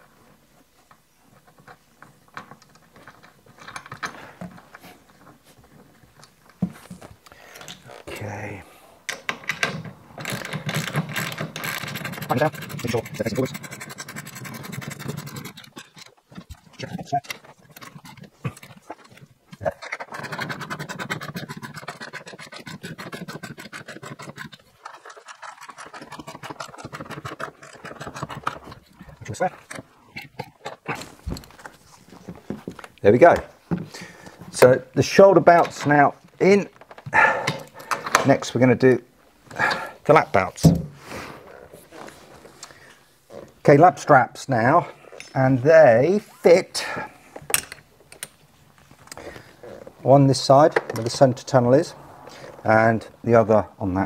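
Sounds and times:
small metallic clicks: 47.4 - 48.4.

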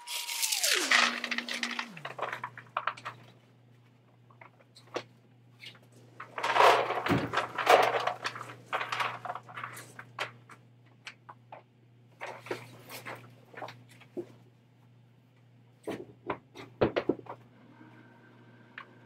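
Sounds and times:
salt pellets pouring into tank: 0.0 - 2.7
plastic bag rustling: 0.0 - 3.1, 6.2 - 10.1
pellets clicking and clattering: 0.0 - 3.2, 6.2 - 10.4.

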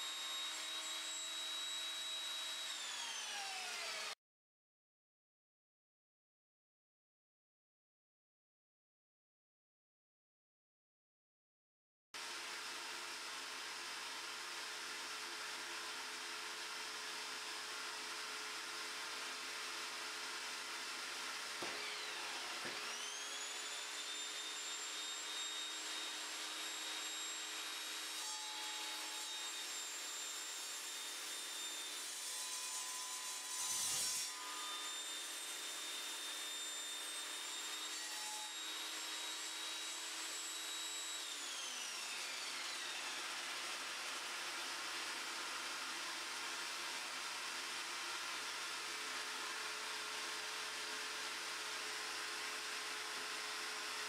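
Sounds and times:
saw blade cutting wood: 0.0 - 4.2, 13.0 - 54.0
table saw motor whining: 0.0 - 4.2, 12.2 - 54.0.

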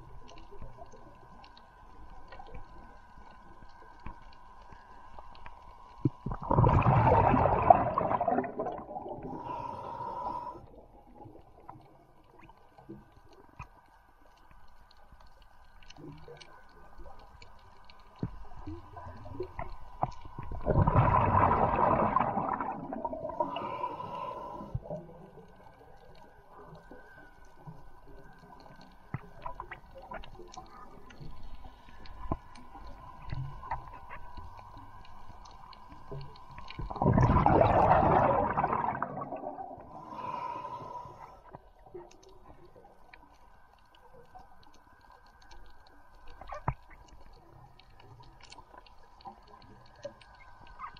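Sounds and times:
faint clicks: 0.0 - 6.3, 11.1 - 20.6, 23.4 - 37.0, 40.8 - 50.9
faint steady hum: 0.0 - 50.9
underwater breath bubbling: 6.2 - 11.0, 20.4 - 25.1, 36.8 - 41.6.

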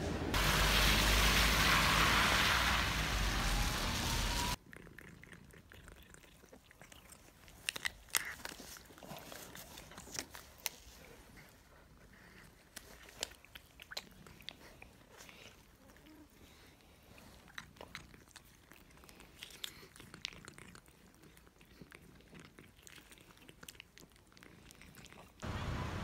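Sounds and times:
cats licking wet clicks: 4.7 - 11.4, 12.3 - 25.4.

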